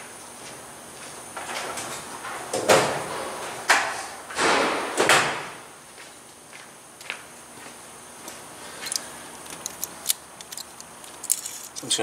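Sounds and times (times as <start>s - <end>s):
hand tools and wires being handled: 8.8s - 12.0s.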